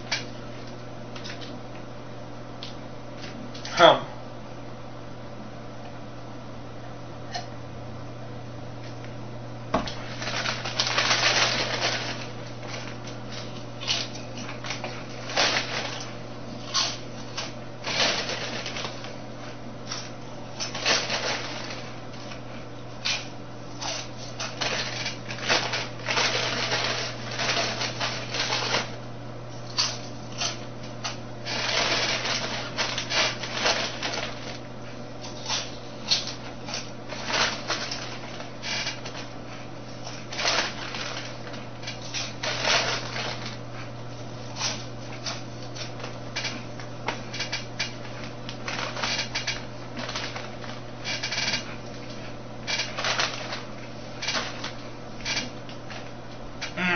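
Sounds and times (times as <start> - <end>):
low electrical hum: 0.0 - 56.9
chips crunching: 9.9 - 19.2, 19.9 - 29.0, 29.6 - 39.4
foil chip bag crinkling: 9.9 - 29.0, 29.6 - 56.1.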